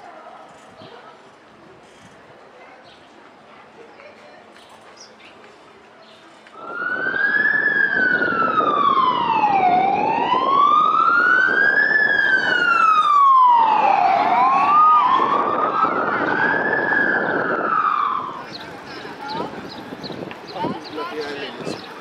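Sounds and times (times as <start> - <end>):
ambulance siren wailing: 6.6 - 18.6.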